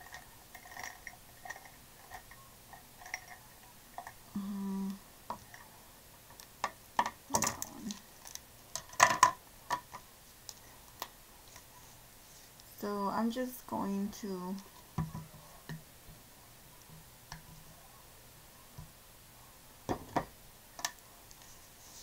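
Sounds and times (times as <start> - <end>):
plastic pens clicking and knocking: 6.3 - 10.0.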